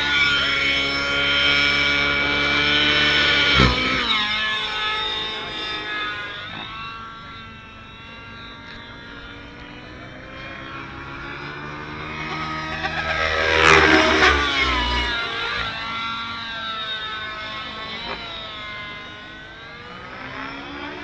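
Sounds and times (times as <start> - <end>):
model helicopter engine and rotors: 0.0 - 21.0.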